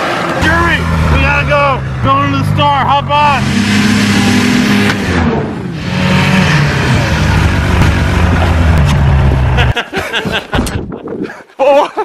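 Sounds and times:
snowmobile engine running: 0.0s - 9.8s.

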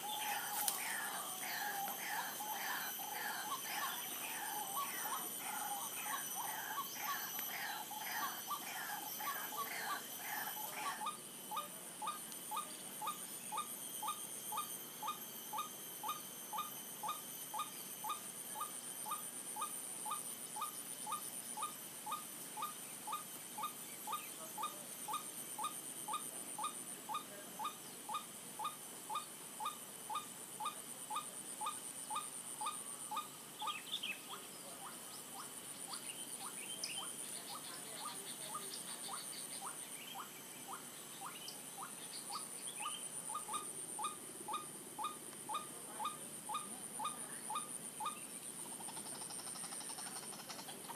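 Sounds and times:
higher bird chirps: 0.0s - 26.2s
steady high-pitched whine: 0.0s - 50.9s.

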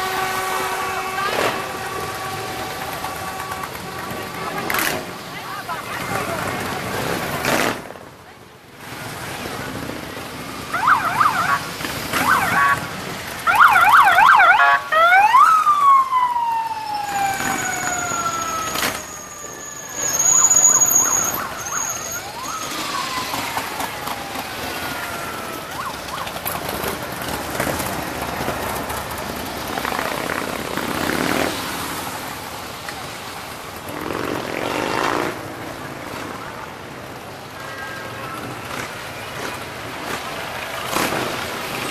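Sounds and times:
siren warbling and wailing: 10.7s - 12.9s, 13.5s - 26.4s
thin high whistle: 18.4s - 22.3s
motorcycles running by: 21.3s - 32.2s, 33.8s - 36.6s.

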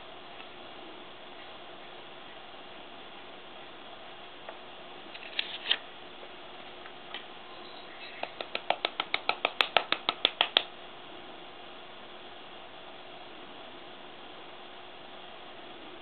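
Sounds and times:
rapid light sharp taps: 8.1s - 10.7s.

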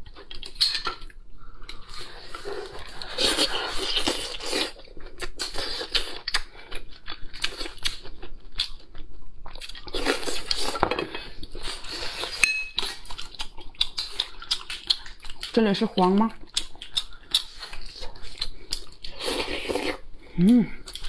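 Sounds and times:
chewing: 0.0s - 21.0s
bright clink: 12.4s - 12.8s.

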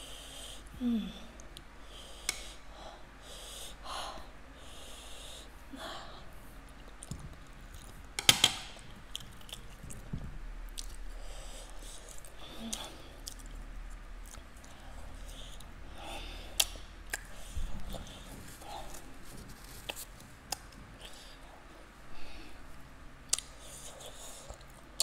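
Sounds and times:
person chewing noodles: 6.6s - 8.2s, 8.8s - 21.8s, 23.2s - 25.0s.

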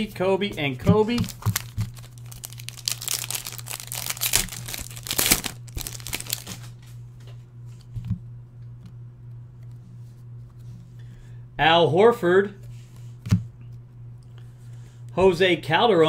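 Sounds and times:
cards rustling: 1.0s - 6.8s
foil wrapper tearing and crinkling: 1.2s - 6.8s.

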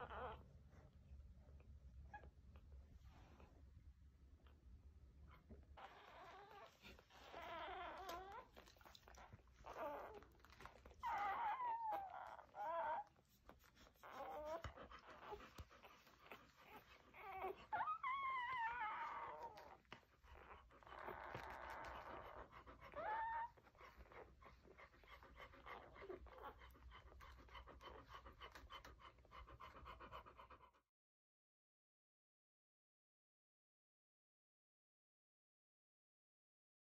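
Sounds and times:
puppies squealing and whimpering: 5.8s - 30.4s
dog panting: 5.8s - 30.9s.

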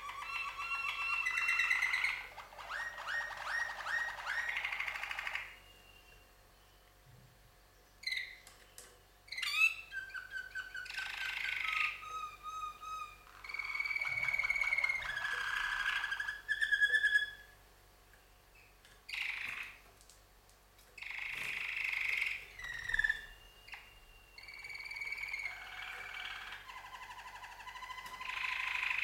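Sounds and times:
canaries singing trills: 0.0s - 7.1s, 7.7s - 17.6s, 18.2s - 19.8s, 20.9s - 29.0s.

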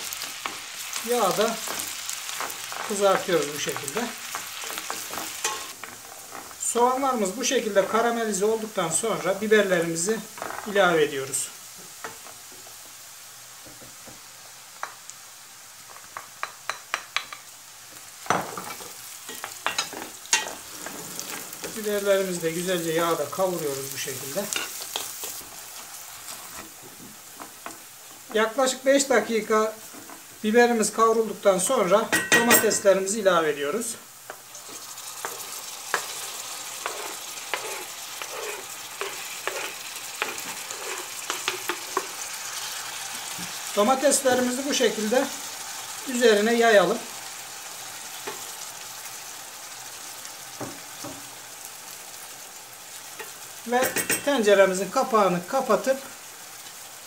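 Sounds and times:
vegetables sizzling in a frying pan: 0.0s - 57.0s
wooden spoon knocking and scraping: 36.8s - 42.2s.

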